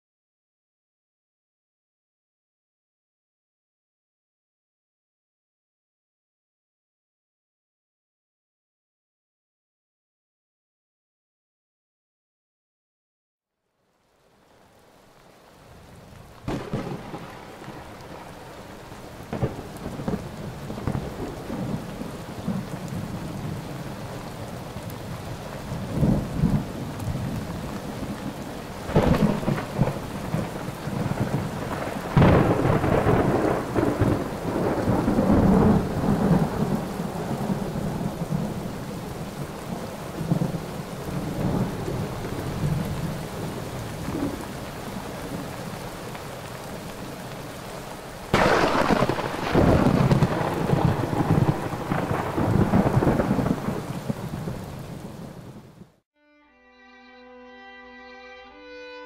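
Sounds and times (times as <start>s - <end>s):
heavy rain: 13.7s - 56.0s
thunder rolling: 16.4s - 45.5s, 48.3s - 56.0s.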